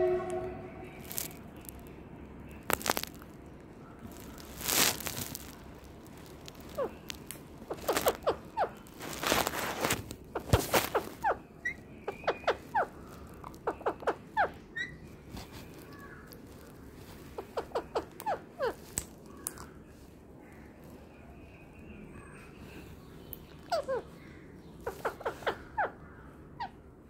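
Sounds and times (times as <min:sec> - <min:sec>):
parakeets chirping: 0:03.9 - 0:19.6, 0:21.3 - 0:26.9.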